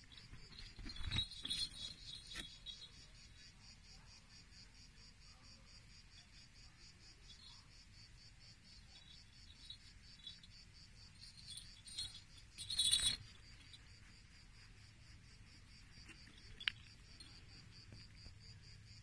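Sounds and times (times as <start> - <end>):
knocks and rustles: 0.0 - 2.8
high-pitched insect chirping: 0.1 - 4.6, 5.3 - 19.0.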